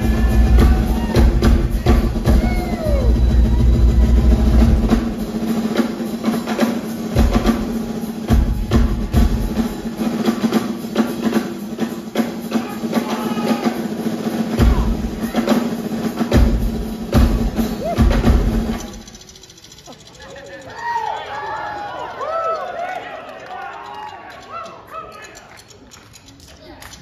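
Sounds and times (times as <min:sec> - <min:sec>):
drum kit solo: 0:00.0 - 0:19.1.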